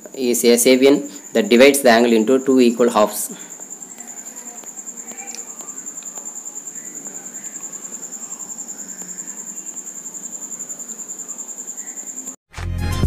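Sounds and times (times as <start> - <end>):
faint room noise: 0.0 - 12.4
insect trilling: 0.0 - 12.4
faint clicks: 3.9 - 6.3.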